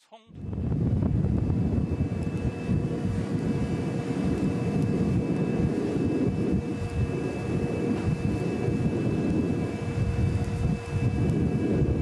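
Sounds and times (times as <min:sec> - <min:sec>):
faint constant hum: 0:00.3 - 0:12.0
low rumble of ship at sea: 0:00.3 - 0:12.0.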